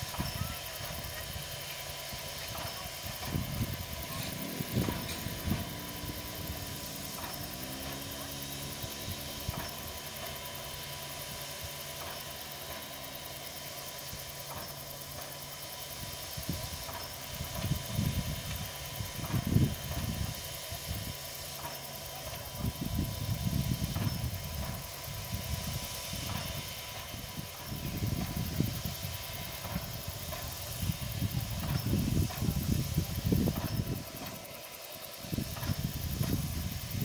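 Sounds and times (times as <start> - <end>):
steam locomotive hissing: 0.0 - 37.0
wind buffeting microphone: 2.2 - 7.4, 17.4 - 21.1, 22.6 - 34.4, 35.2 - 37.0.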